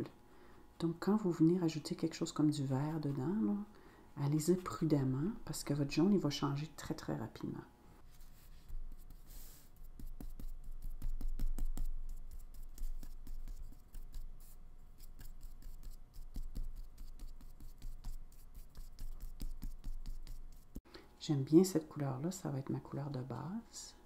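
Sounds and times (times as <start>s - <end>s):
paintbrush scratchy strokes and taps: 8.1s - 20.8s.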